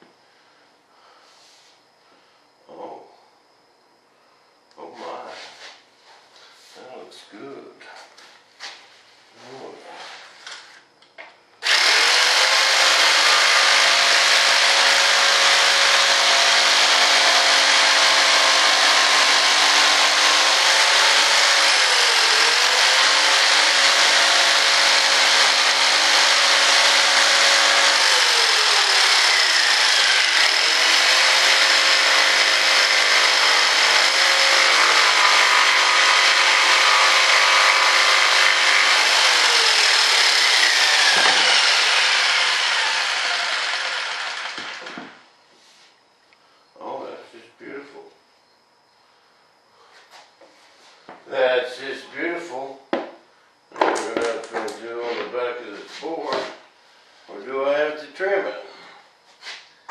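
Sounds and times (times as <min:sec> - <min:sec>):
power tool cutting wood: 0:11.6 - 0:45.2.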